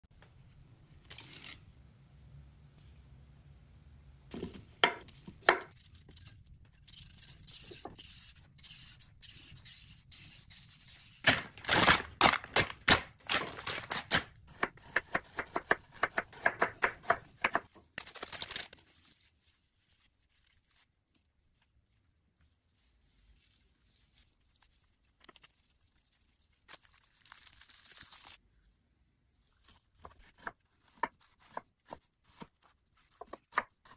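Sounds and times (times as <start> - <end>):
plastic wrap crinkling and tearing: 11.2 - 14.5, 17.8 - 22.1, 23.0 - 28.4.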